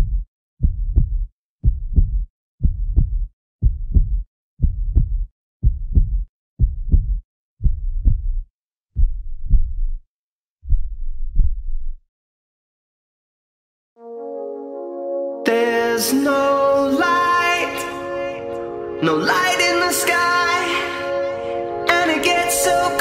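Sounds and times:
heartbeat thumps: 0.0 - 10.0, 10.6 - 12.0.

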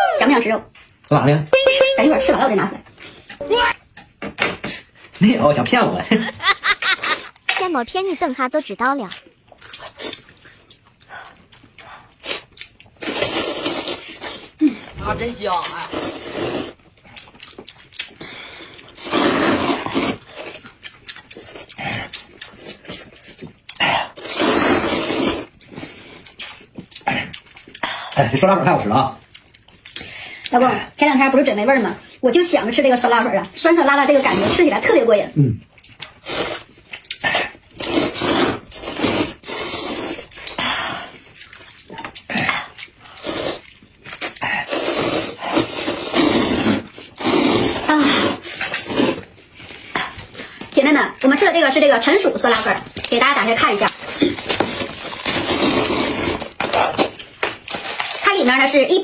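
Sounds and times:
wet chewing and lip-smacking: 8.2 - 15.0, 16.8 - 19.0, 20.0 - 24.3, 25.5 - 28.2, 29.2 - 30.6, 35.6 - 37.8, 40.1 - 46.2
noodle slurping: 12.0 - 16.9, 18.9 - 20.6, 24.1 - 25.5, 36.2 - 40.6, 43.0 - 49.3, 54.1 - 56.6.

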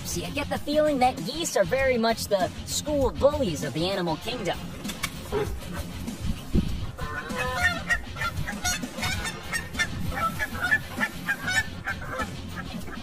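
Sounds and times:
goose honking: 5.2 - 5.9, 6.9 - 13.0.

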